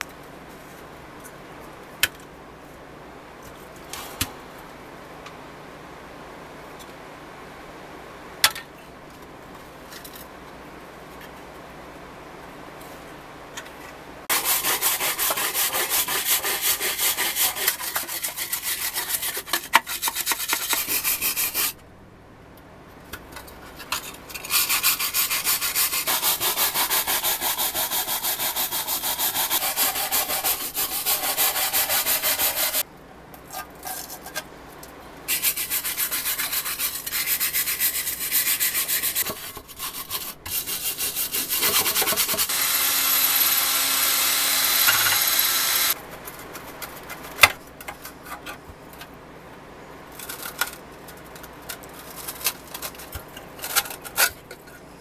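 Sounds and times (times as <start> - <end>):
sanding block scraping metal: 14.3 - 21.8, 24.4 - 32.8, 35.3 - 46.0.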